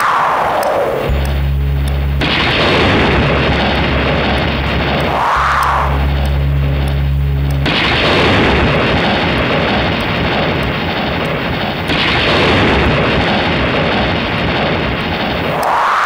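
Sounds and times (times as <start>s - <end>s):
loud rushing noise: 0.0s - 16.0s
low held musical tones: 0.6s - 12.0s.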